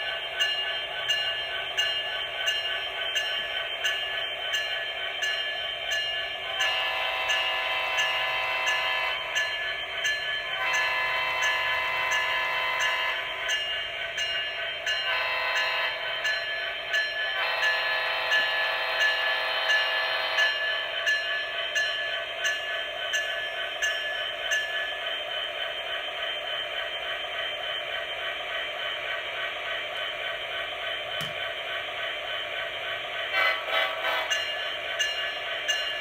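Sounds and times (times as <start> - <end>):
train horn blasts from small speaker: 6.6 - 9.2, 10.6 - 13.2, 15.1 - 16.0, 33.4 - 34.4.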